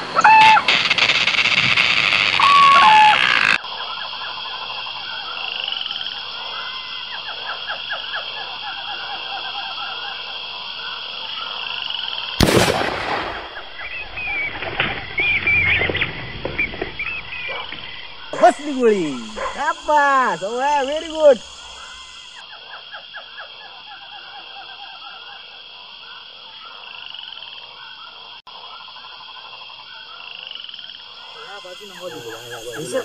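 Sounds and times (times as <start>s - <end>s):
crickets and frogs chorus: 0.0s - 33.0s
whistling tones: 1.4s - 3.6s
gunshot: 12.4s - 13.8s.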